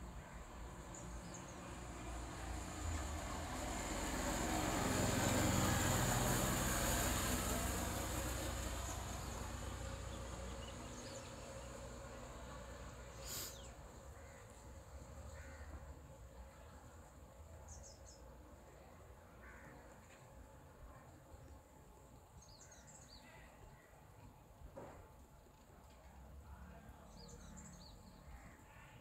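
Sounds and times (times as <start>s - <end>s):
vehicle passing: 1.2s - 13.2s.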